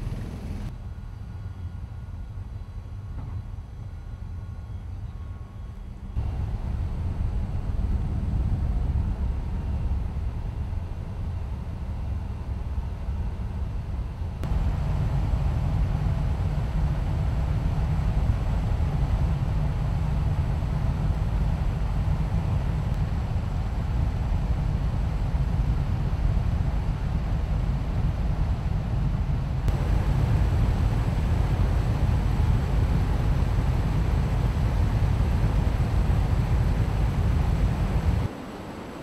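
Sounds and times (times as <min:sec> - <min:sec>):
aircraft rotors rumbling: 0:00.0 - 0:00.7, 0:14.4 - 0:28.6, 0:29.2 - 0:39.0.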